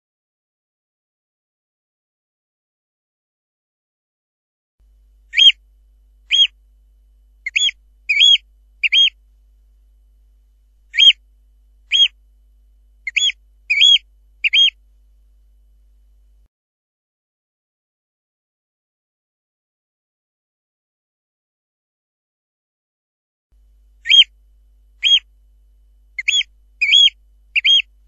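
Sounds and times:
bird piping calls: 5.3s - 5.6s, 6.3s - 6.6s, 7.4s - 9.2s, 10.9s - 11.2s, 11.9s - 12.2s, 13.0s - 14.8s, 24.0s - 24.3s, 25.0s - 25.3s, 26.2s - 27.9s.

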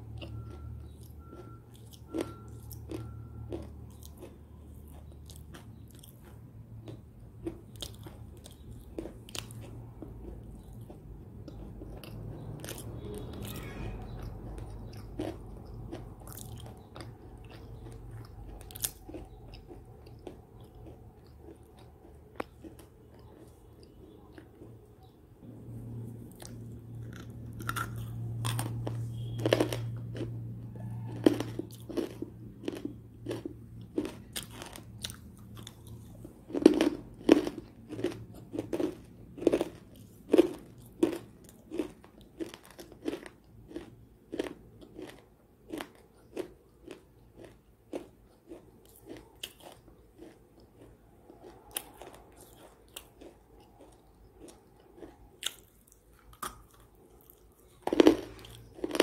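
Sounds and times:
cookie crunching and chewing: 0.0s - 59.0s.

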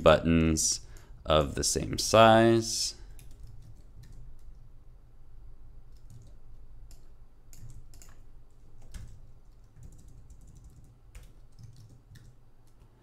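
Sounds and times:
keyboard keys clicking: 5.9s - 12.9s.

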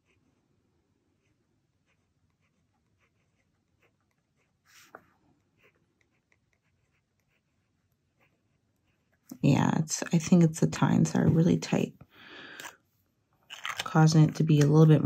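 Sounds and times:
pen nib scratching on paper: 0.0s - 0.5s, 1.1s - 9.3s.

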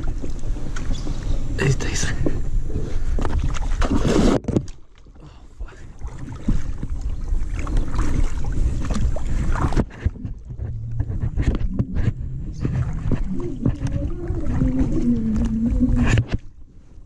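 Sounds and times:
water sloshing: 0.0s - 17.0s
low rumble: 5.8s - 16.6s.

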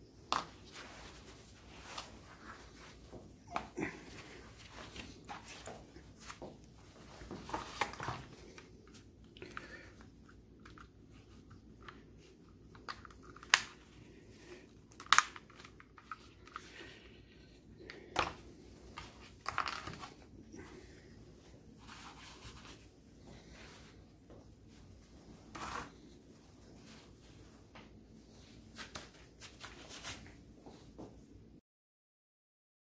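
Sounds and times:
rustling: 0.3s - 17.0s.

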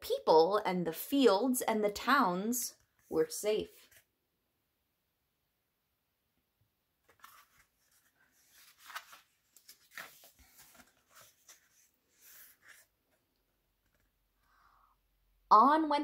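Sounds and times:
paper pages turning: 7.0s - 13.2s, 13.8s - 14.2s.

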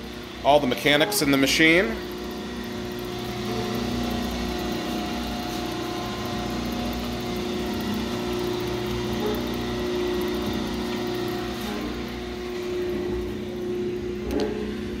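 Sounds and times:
mixer motor humming: 0.0s - 15.0s.

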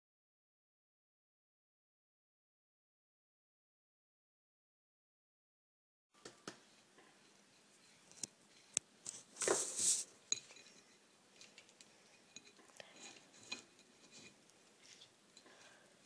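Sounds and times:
scraping rustle: 8.6s - 15.1s
glass jar clinking: 10.3s - 11.0s, 12.1s - 14.4s.

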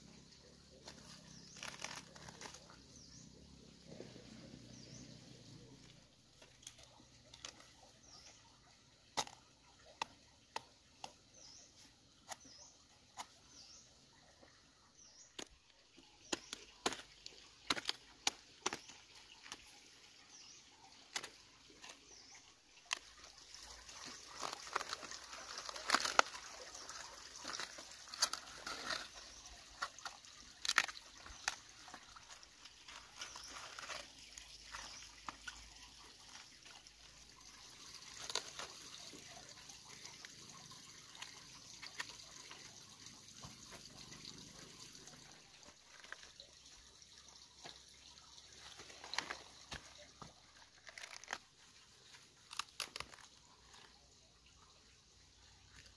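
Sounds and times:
leaves rustling: 0.0s - 8.4s, 15.0s - 47.0s, 48.5s - 54.4s
small bird chirping: 0.0s - 55.9s
cabbage leaves snapping: 0.8s - 2.9s, 22.9s - 36.9s, 37.8s - 40.3s, 48.7s - 51.5s, 52.1s - 54.0s.

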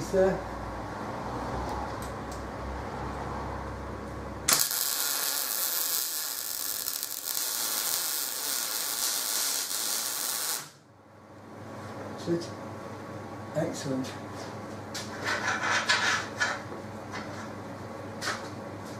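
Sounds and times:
arc welder hissing: 4.5s - 10.8s.

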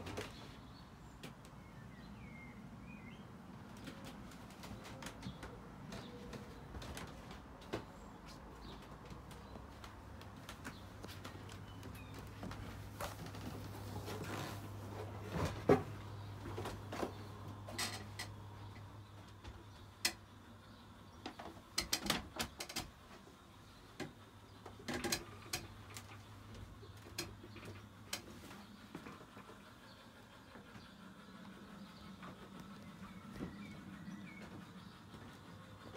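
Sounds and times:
footsteps: 3.6s - 17.3s.

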